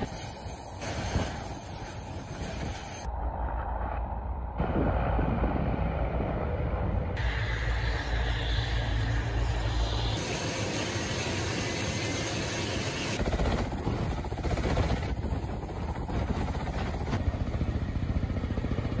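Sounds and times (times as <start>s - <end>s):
helicopter rotor blades chopping: 5.6s - 19.0s.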